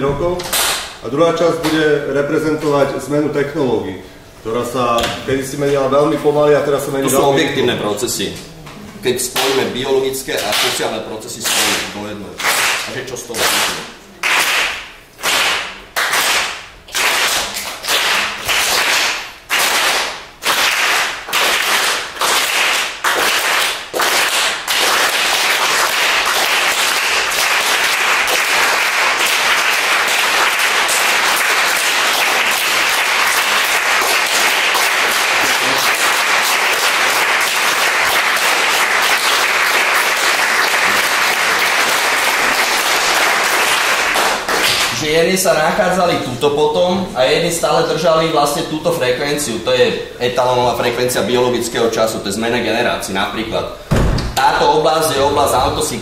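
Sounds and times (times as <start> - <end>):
group hand-clapping: 0.0 - 1.0, 1.6 - 1.8, 9.3 - 45.1.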